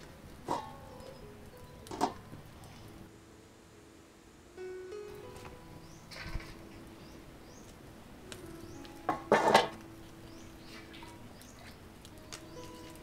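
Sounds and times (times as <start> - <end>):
metal pot lid clattering on wok: 0.5 - 0.8, 1.9 - 2.2, 9.1 - 9.8.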